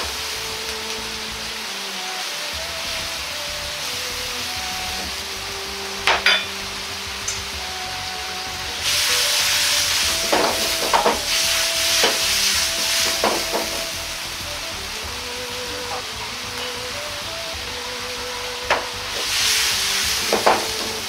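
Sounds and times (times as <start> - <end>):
food sizzling in a wok: 0.0 - 21.0.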